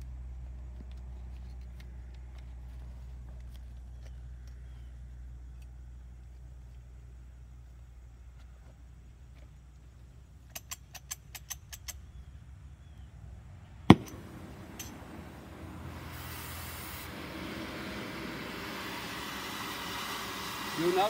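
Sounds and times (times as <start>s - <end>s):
torch igniter clicks: 13.9s - 19.2s
torch igniting pop: 13.9s - 20.0s
torch flame hissing: 13.9s - 21.0s.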